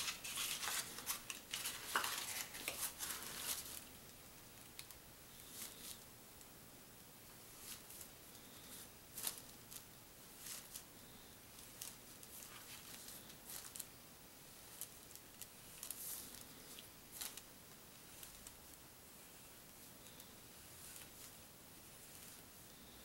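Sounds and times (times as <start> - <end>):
paintbrush stroking on paper: 15.6 - 22.6.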